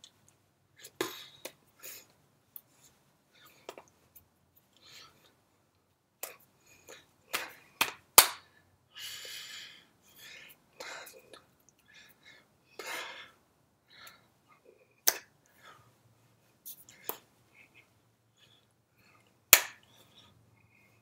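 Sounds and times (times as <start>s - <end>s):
hand clicks taps and smacks: 7.3s - 8.4s, 15.0s - 15.3s, 19.5s - 19.9s.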